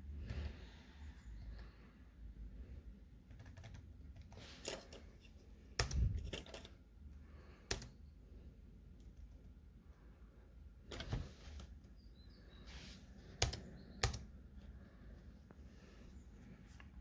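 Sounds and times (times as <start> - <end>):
laptop keyboard typing: 3.2 - 4.9, 5.7 - 6.7, 7.5 - 8.0, 13.2 - 14.4.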